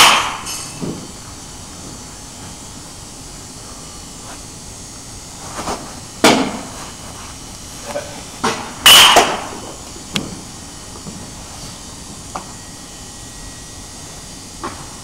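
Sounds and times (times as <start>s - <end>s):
baseball smacking target: 0.0s - 1.0s, 6.2s - 6.6s, 8.4s - 9.5s.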